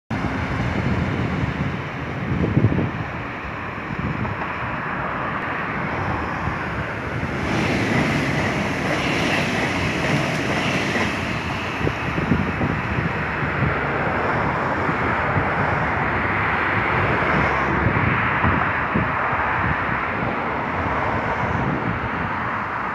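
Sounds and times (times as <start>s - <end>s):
road traffic noise: 0.1s - 22.9s
train passing on tracks: 0.1s - 22.9s.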